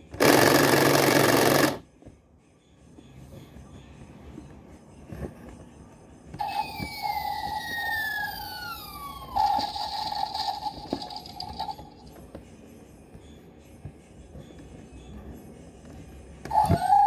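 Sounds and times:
toy siren-like electronic tone: 6.4s - 11.8s, 16.5s - 17.0s.

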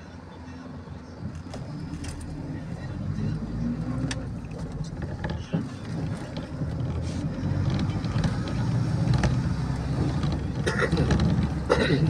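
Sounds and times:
bus engine and road rumble: 0.0s - 12.0s
rattles: 4.0s - 12.0s.

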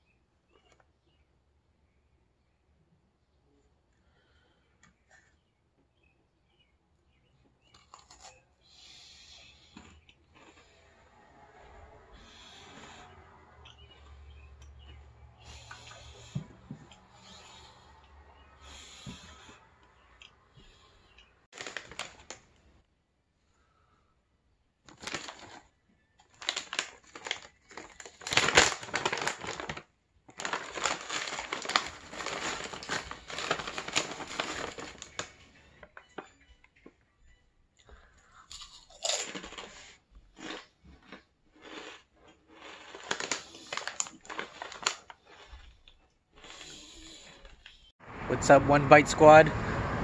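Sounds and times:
plastic snack bag crinkling: 21.5s - 22.6s, 24.8s - 36.3s, 38.5s - 47.8s.

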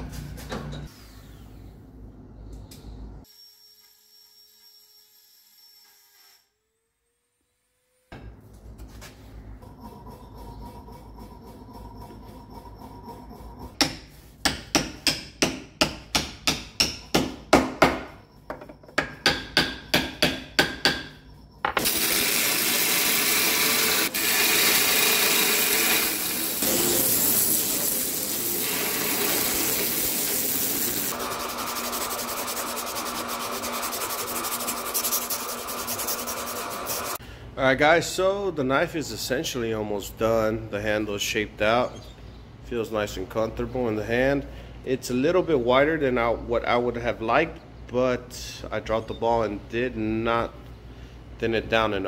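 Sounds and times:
bandsaw running: 21.8s - 37.2s
abrasive strip rasping: 24.0s - 37.2s.

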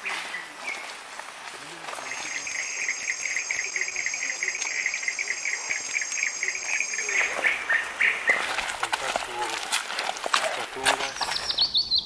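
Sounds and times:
insects pulsing chirp: 1.9s - 10.2s, 11.0s - 12.0s.

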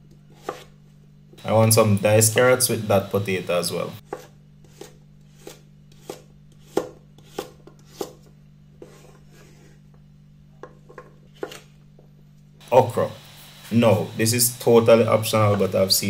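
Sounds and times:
steady low hum: 0.0s - 16.0s
knife chopping on wooden board: 0.4s - 0.7s, 4.1s - 9.1s.

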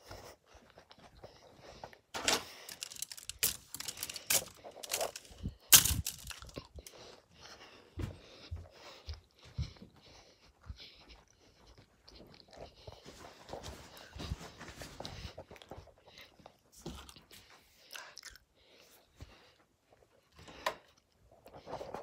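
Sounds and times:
phone being handled: 2.2s - 6.7s.

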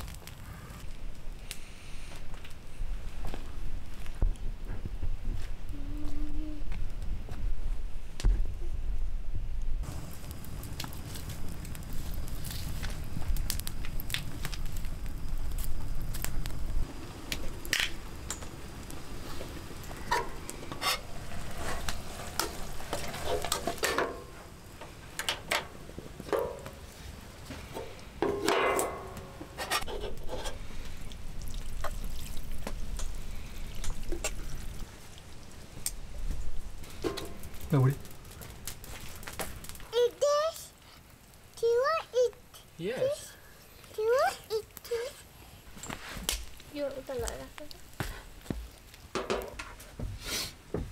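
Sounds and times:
utensils clinking and scraping on pan: 20.0s - 24.3s, 27.7s - 30.6s.

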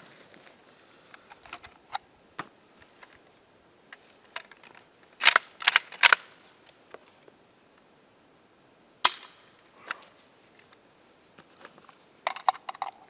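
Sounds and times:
rifle sling and action rattling: 4.0s - 6.4s, 11.6s - 13.0s
rifle bolt clacking: 5.2s - 6.3s.

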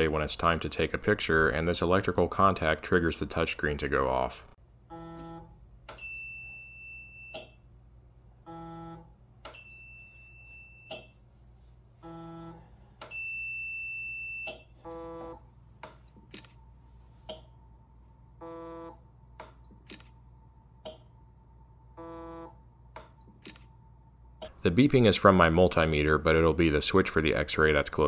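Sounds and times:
multimeter beeping: 4.9s - 7.6s, 8.5s - 11.2s, 12.0s - 24.5s.

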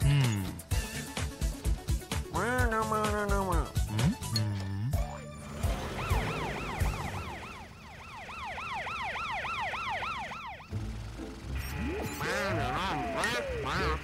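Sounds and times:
siren yelping: 5.2s - 10.8s, 11.6s - 14.0s.

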